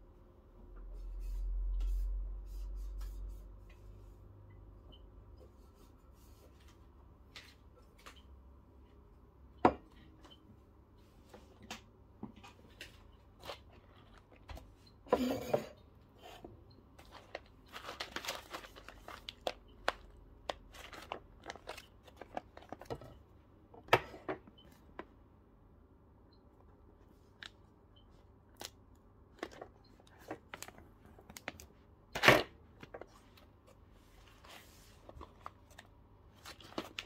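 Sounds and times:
paper bag crinkling: 0:17.0 - 0:22.9.

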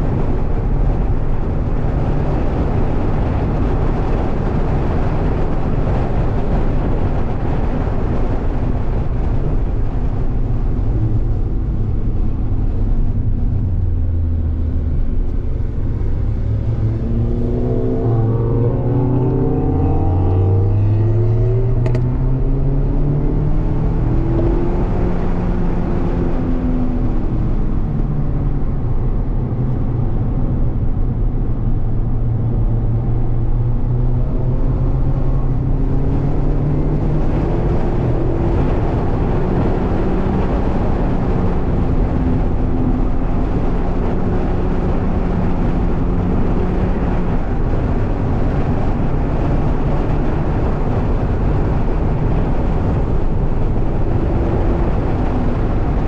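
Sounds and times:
car engine accelerating: 0:00.0 - 0:56.0
road and wind noise: 0:00.0 - 0:56.0.

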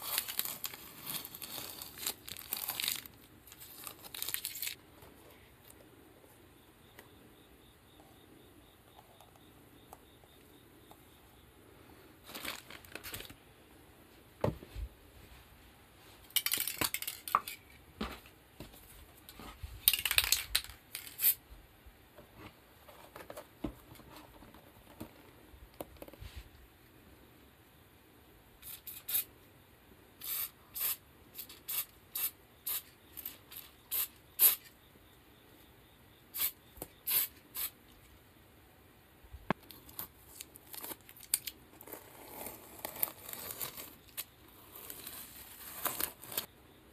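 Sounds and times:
aerosol spray can hissing: 0:30.2 - 0:31.0, 0:36.4 - 0:37.7.

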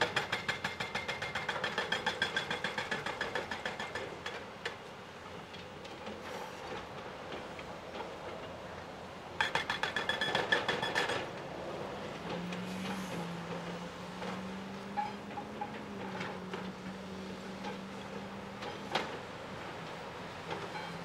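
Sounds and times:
excavator engine hum: 0:05.3 - 0:21.0.

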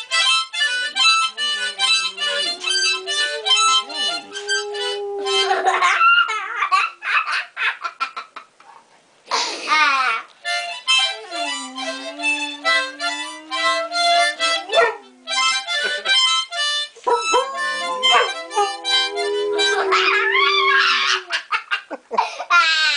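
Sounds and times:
harmonica playing: 0:00.0 - 0:05.8, 0:10.4 - 0:21.3
dogs howling: 0:00.7 - 0:06.5, 0:10.8 - 0:16.4, 0:17.0 - 0:21.5.

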